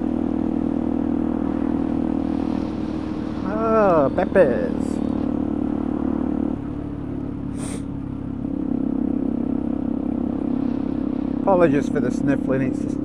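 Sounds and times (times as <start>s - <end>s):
motorcycle engine running: 0.0s - 13.0s
person sniffing: 7.5s - 7.9s.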